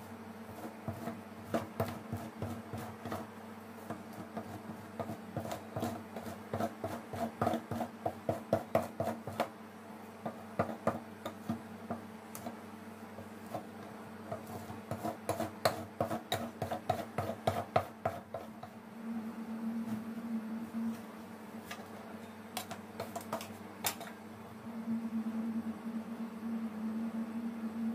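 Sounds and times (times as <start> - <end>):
spatula scraping ice cream roll: 0.5 - 9.5, 13.2 - 18.8, 22.6 - 24.1.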